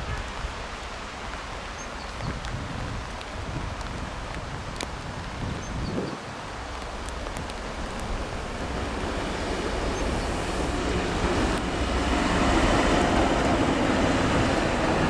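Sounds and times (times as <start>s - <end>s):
diesel locomotive passing: 7.6s - 15.0s.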